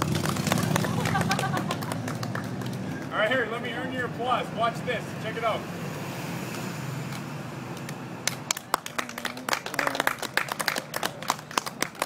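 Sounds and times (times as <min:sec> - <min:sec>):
people clapping: 0:00.0 - 0:03.2, 0:08.2 - 0:12.0.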